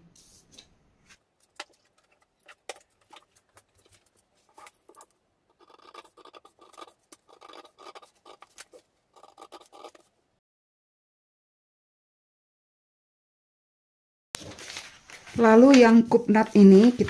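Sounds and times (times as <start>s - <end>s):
paper rustling: 0.2s - 10.1s, 14.4s - 17.0s
scissors snipping paper: 1.4s - 10.1s.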